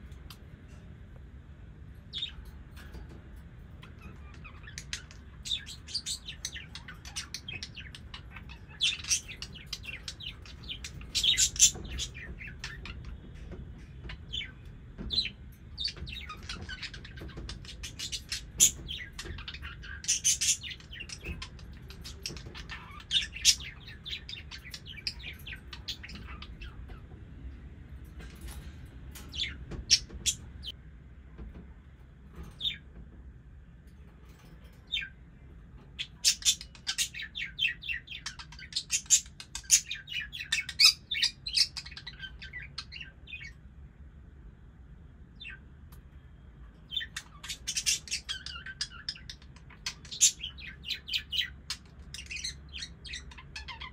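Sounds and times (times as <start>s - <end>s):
budgerigars chirping: 3.8s - 27.0s, 36.0s - 43.6s, 46.9s - 53.9s.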